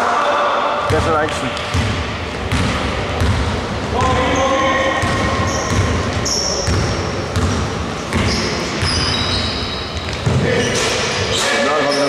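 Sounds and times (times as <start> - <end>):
basketball bouncing on wooden floor: 0.9 - 4.3, 5.0 - 9.1
sneaker squeaks: 4.0 - 12.0.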